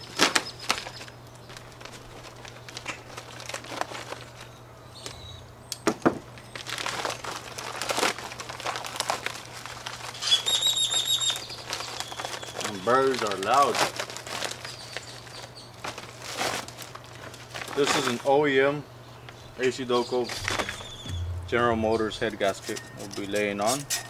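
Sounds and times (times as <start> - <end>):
plastic packaging crinkling: 0.0 - 4.6, 6.4 - 18.3
bird trilling: 19.4 - 22.2.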